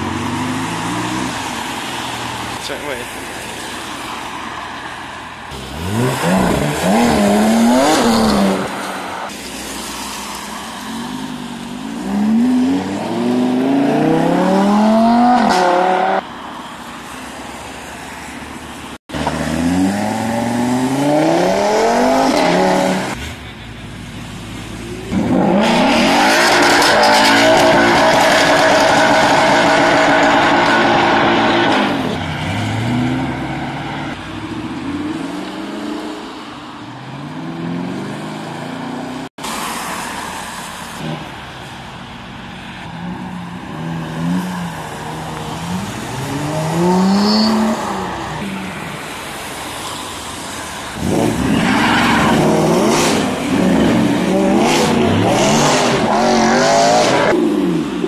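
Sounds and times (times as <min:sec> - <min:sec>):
cars accelerating hard: 0:05.5 - 0:09.3, 0:10.8 - 0:16.2, 0:19.1 - 0:23.4, 0:24.8 - 0:36.4, 0:43.0 - 0:58.0.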